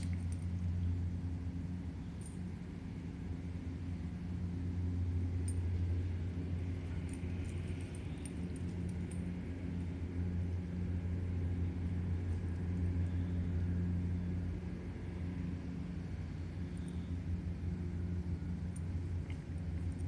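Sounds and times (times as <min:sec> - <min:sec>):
low mechanical hum: 0:00.0 - 0:20.0
dog collar tags jingling: 0:06.8 - 0:09.8.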